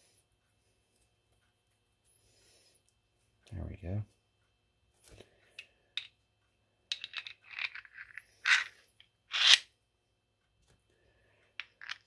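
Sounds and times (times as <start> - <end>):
steel parts clinking: 6.9 - 9.6.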